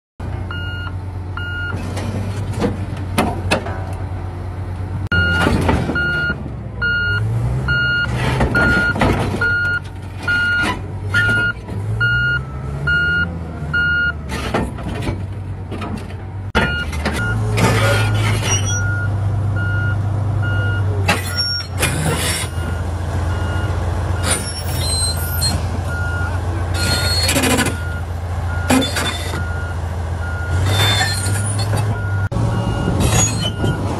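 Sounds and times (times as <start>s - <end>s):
bulldozer diesel engine revving: 0.2s - 33.9s
travel alarm beeping: 0.5s - 1.8s
steel tracks clanking on metal: 1.8s - 4.2s, 21.0s - 29.6s.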